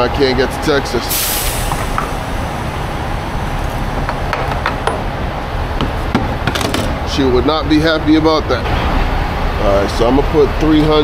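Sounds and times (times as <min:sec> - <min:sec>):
diesel pumping into fuel tank: 0:01.0 - 0:05.1.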